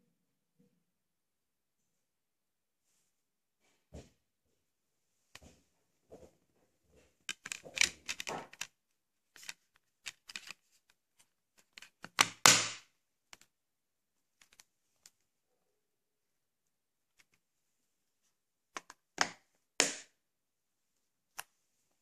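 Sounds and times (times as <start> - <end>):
plastic case clicks and clatter: 7.3 - 8.8.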